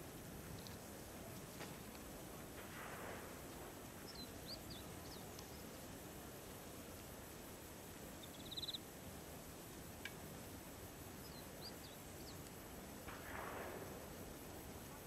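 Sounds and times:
faint outdoor background noise: 0.0s - 15.0s.

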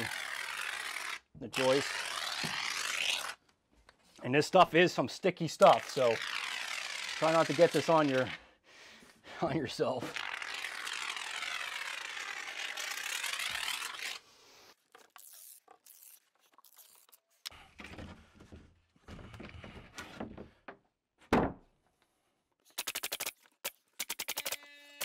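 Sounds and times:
adhesive hissing from foam gun: 0.0s - 3.4s, 10.0s - 17.6s
board scraping and knocking: 17.6s - 21.7s
quick clicks: 22.7s - 24.6s.

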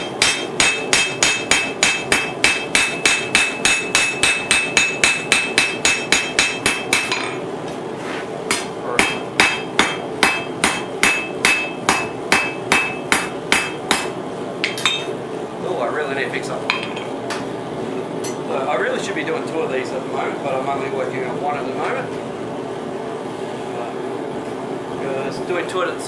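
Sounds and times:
hammer striking metal on anvil: 0.0s - 7.4s, 8.5s - 15.2s.

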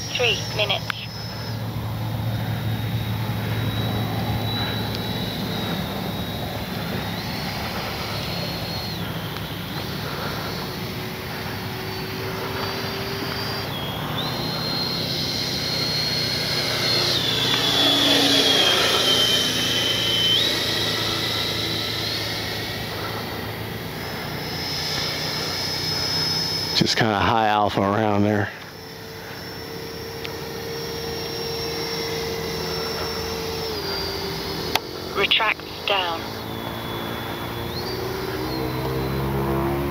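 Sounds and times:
electric ducted fan whine: 0.0s - 39.9s.

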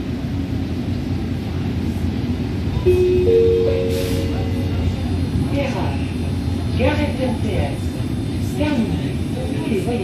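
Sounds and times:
metro train rumbling: 0.0s - 10.0s
three-note rising chime: 2.8s - 4.9s.

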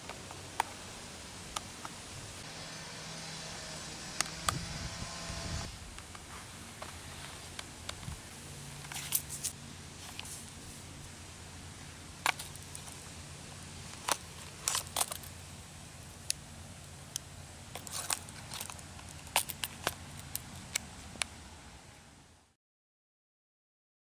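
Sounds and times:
leather sheath clicks and crackles: 5.9s - 10.6s, 12.2s - 21.4s.

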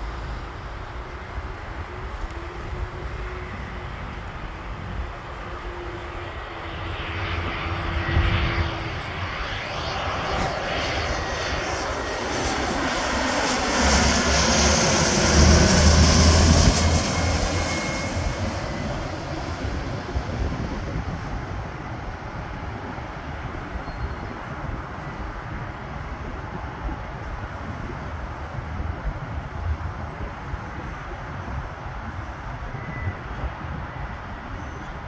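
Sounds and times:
deep rumble: 0.0s - 23.4s
jet engine noise: 0.0s - 35.0s.

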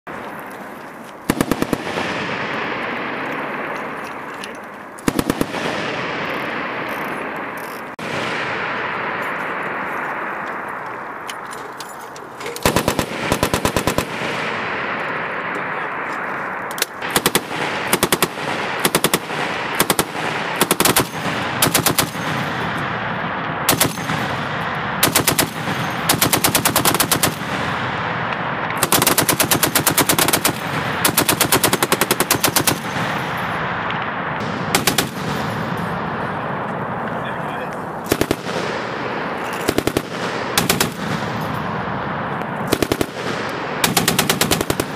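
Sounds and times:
gunfire echo: 0.1s - 44.9s
machine gun bursts: 12.4s - 14.3s, 17.0s - 22.5s, 28.8s - 33.2s, 43.8s - 44.9s.

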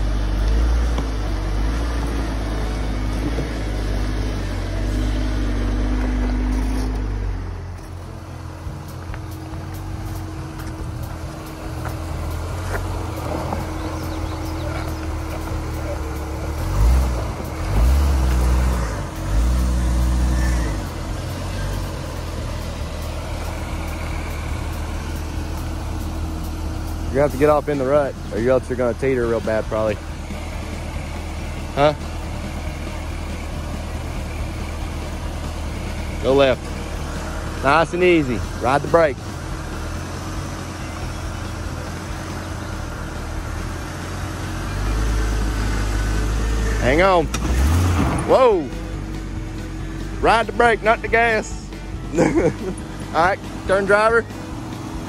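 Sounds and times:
engine revving under throttle: 11.7s - 51.4s.

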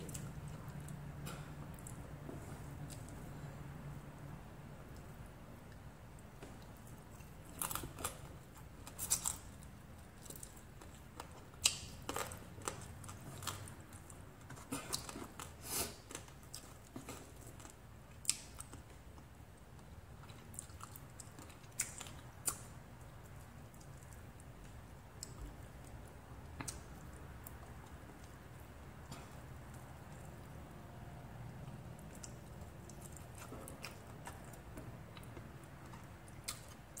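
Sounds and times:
low room hum: 0.0s - 37.0s
person chewing with mouth smacks: 31.5s - 37.0s.

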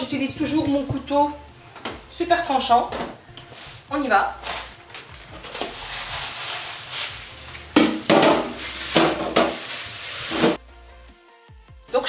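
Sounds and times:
plastic bowl clattering in sink: 7.8s - 10.6s.

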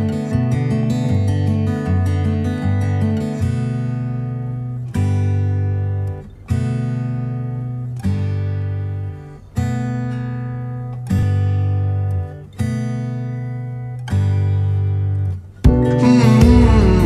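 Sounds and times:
acoustic guitar strumming: 0.0s - 17.0s.

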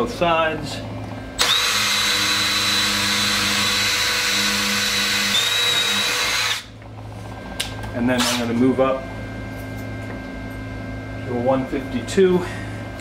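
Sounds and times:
cordless drill drilling steel: 1.4s - 6.7s.

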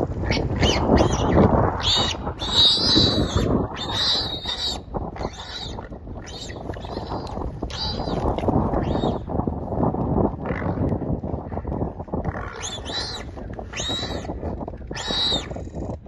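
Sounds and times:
wind rumble on microphone: 0.0s - 16.0s
warthog squealing: 0.2s - 9.3s, 12.3s - 15.6s.

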